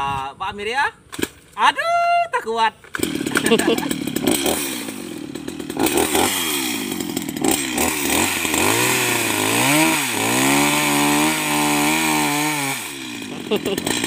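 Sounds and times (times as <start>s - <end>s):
chainsaw cutting log: 2.9s - 14.0s
chainsaw engine revving: 2.9s - 14.0s.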